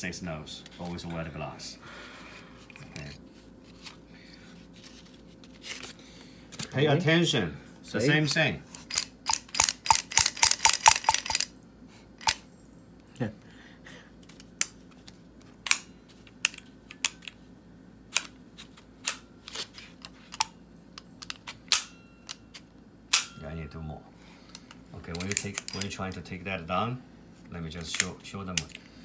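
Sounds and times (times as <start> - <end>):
air rifle metal clicks: 8.8 - 11.5, 24.5 - 26.2.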